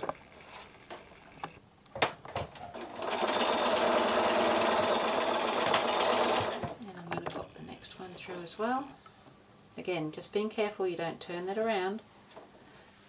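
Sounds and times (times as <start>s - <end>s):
sewing machine stitching: 2.8s - 6.8s.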